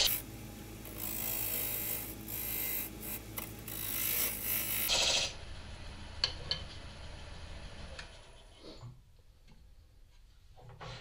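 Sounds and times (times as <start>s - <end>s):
steady low hum: 0.0s - 8.6s.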